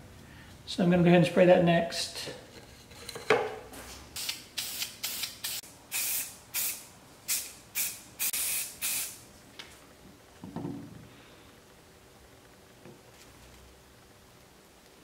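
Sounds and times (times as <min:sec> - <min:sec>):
spray-paint can hissing: 0:04.2 - 0:09.2.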